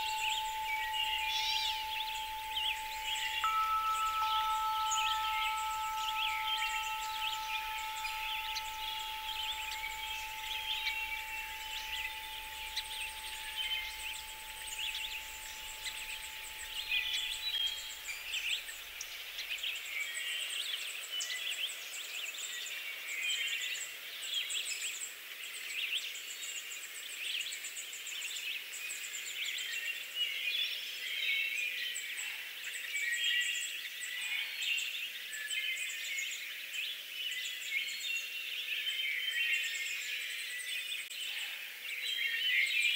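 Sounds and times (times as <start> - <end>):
low hum: 0.0 - 18.6
faint steady tone: 0.0 - 19.7
small birds chirping: 0.0 - 19.7.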